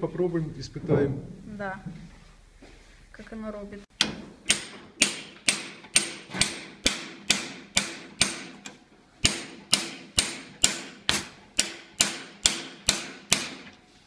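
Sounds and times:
hammer striking metal chisel: 4.0 - 13.8.

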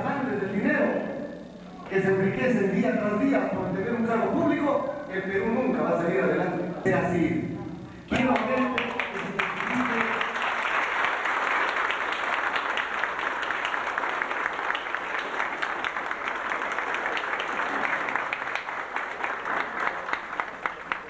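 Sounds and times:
audience applauding: 8.1 - 21.0.

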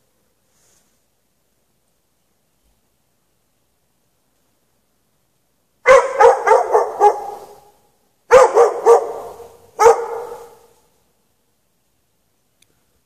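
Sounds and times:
dog barking with echo: 5.9 - 10.8.

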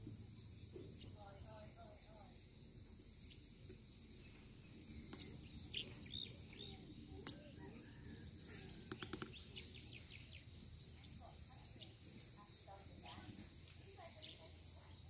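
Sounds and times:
insect pulsing trill: 0.0 - 15.0
bird-like chirps: 3.2 - 12.3.

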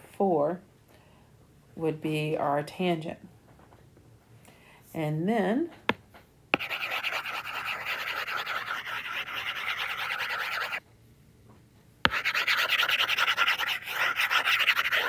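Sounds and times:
stylus scrubbing on glass screen: 6.6 - 10.8, 12.1 - 15.0.

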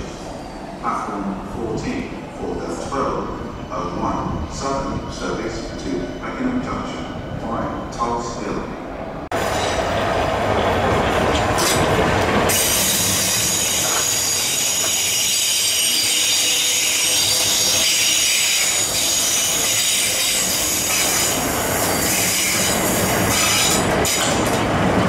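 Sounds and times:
train moving: 0.0 - 25.0
high-pitched wheel squeal on rails: 12.5 - 21.3.

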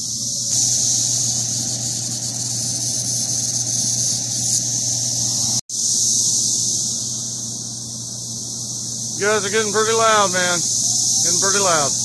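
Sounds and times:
cicadas droning: 0.0 - 12.0.

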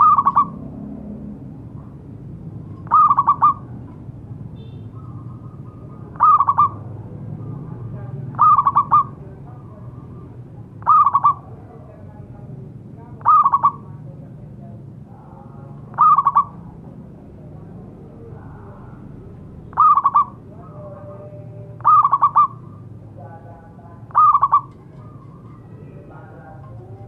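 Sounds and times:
dove cooing: 0.0 - 0.6, 2.6 - 3.9, 5.0 - 7.5, 8.3 - 9.2, 10.8 - 11.5, 13.2 - 13.9, 15.9 - 16.6, 19.7 - 22.9, 24.0 - 27.0.

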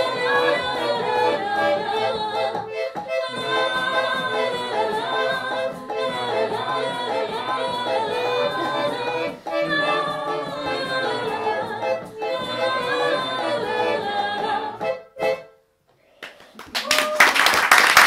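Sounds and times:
woman singing folk song: 0.0 - 14.9
concertina: 0.0 - 16.4.

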